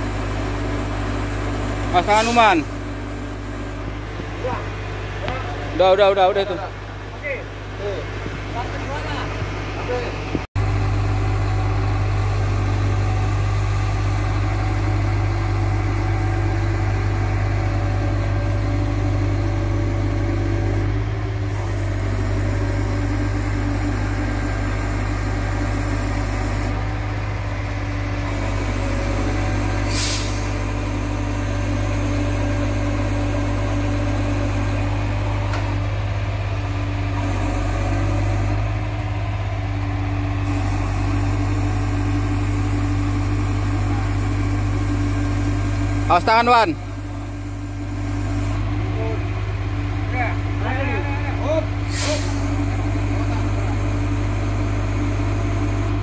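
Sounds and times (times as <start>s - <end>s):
diesel engine running: 0.0s - 56.0s
hydraulic whine: 0.0s - 56.0s.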